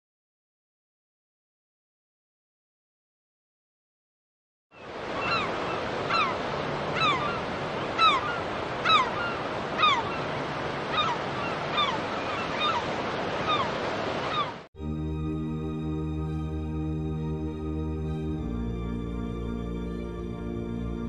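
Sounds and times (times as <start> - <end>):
gull calling: 4.8 - 14.7
sea surf washing: 4.8 - 14.7.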